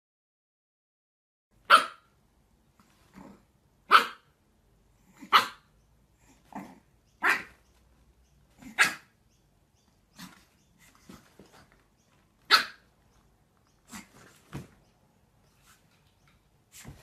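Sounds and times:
puppy barking: 1.6s - 2.2s, 3.8s - 4.4s, 5.1s - 5.7s, 7.2s - 7.7s, 8.6s - 9.2s, 12.4s - 12.9s.

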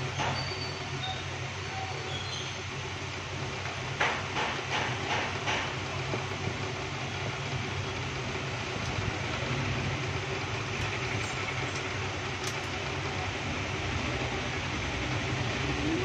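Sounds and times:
low rumble and hiss: 0.0s - 16.0s.

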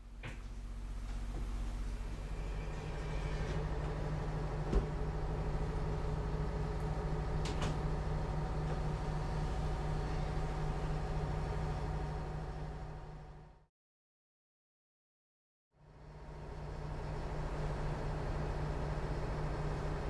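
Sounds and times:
boat engine low drone: 0.7s - 13.6s.

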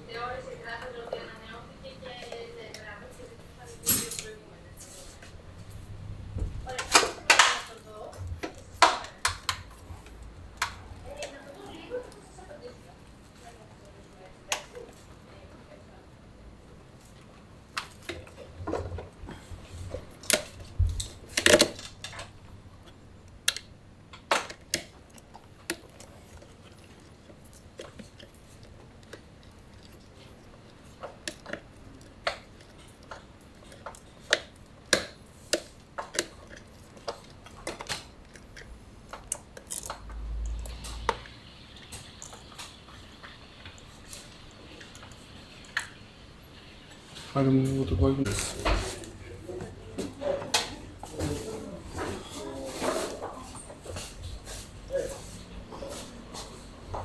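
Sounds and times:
metal tools clinking: 3.8s - 4.4s.

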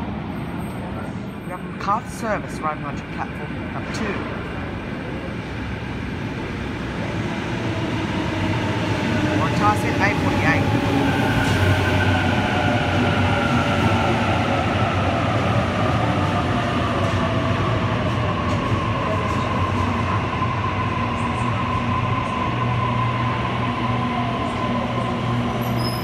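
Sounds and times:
train low rumble: 0.0s - 26.0s.

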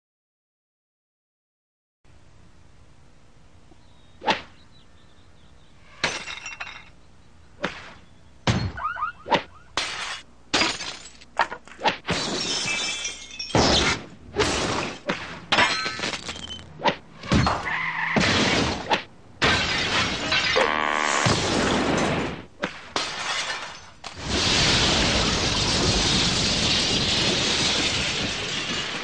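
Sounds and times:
crashing and shattering: 9.8s - 11.3s, 12.1s - 16.6s, 21.3s - 29.0s.

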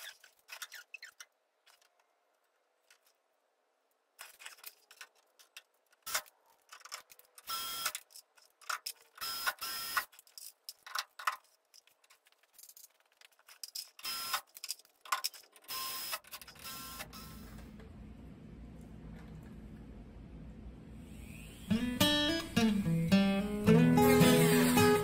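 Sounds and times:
cordless drill drilling metal: 9.2s - 10.1s.

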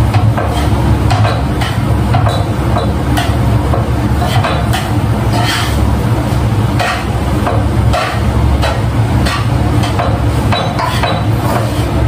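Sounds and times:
steady low hum: 0.0s - 12.0s
metal utensil scraping a pan: 0.4s - 2.5s, 4.2s - 5.9s, 6.8s - 7.2s, 7.8s - 12.0s.

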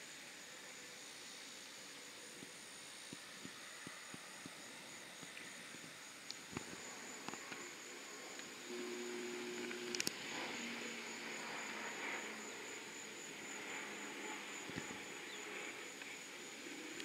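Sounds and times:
crickets droning: 0.0s - 17.0s
low steady hum: 0.0s - 17.0s
soft hiss: 0.0s - 17.0s
faint ticks: 5.2s - 10.8s, 15.6s - 16.2s.

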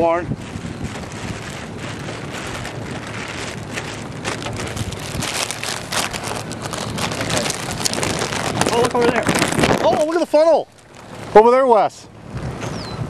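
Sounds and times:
wind on microphone: 0.0s - 11.5s, 12.1s - 13.0s
rain: 0.4s - 11.6s
raindrops ticking: 1.3s - 11.3s.

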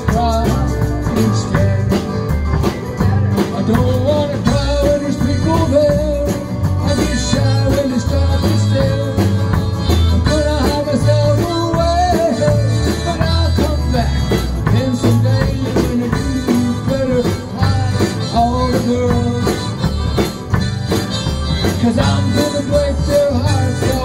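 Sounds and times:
drums keeping a beat: 0.0s - 24.0s
guitar: 0.0s - 24.0s
harmonica solo: 7.9s - 11.2s, 12.4s - 15.0s, 17.4s - 23.8s.

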